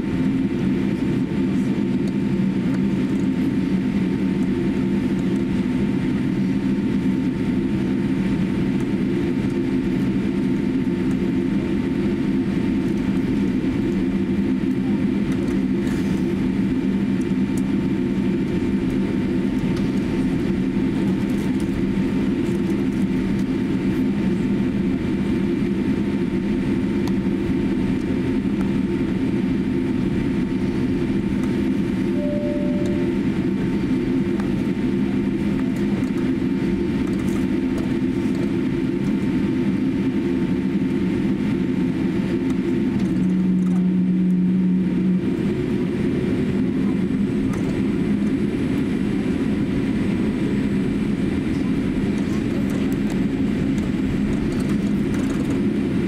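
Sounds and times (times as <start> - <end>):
airliner cabin rumble: 0.0 - 56.0
faint steady whine: 27.4 - 37.2.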